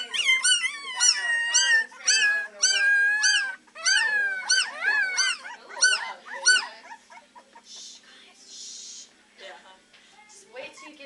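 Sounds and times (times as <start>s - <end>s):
puppies howling: 0.0s - 7.6s.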